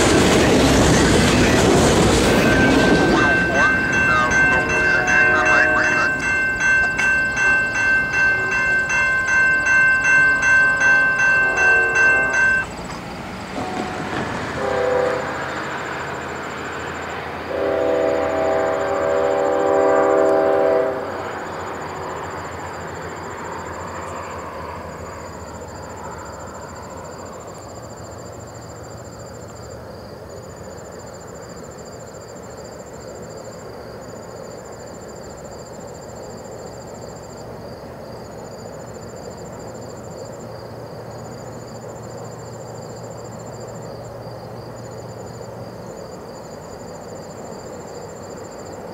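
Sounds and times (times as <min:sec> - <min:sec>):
train rumble: 0:00.0 - 0:48.9
insects trilling: 0:01.4 - 0:13.2, 0:14.6 - 0:48.9
train horn blast: 0:02.4 - 0:06.3, 0:11.5 - 0:12.4, 0:13.6 - 0:15.7, 0:17.5 - 0:21.3.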